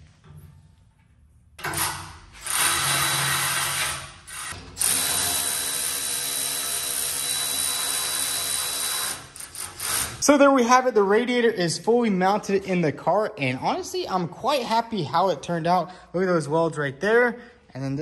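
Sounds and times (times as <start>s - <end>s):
electric power tool running: 2.4s - 9.5s.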